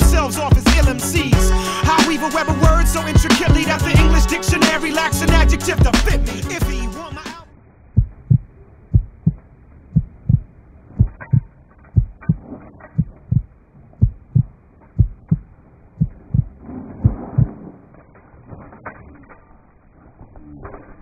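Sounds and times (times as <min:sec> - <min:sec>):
heartbeat thumps: 0:02.6 - 0:04.3, 0:08.0 - 0:17.7.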